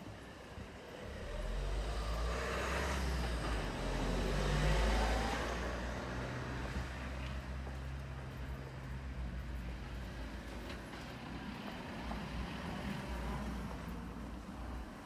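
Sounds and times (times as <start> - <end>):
vehicle driving past: 0.9 - 8.5.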